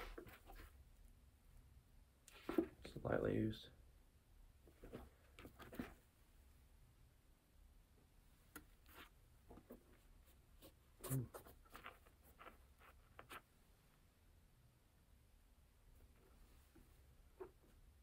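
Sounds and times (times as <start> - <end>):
scratchy rustles: 8.8 - 13.6.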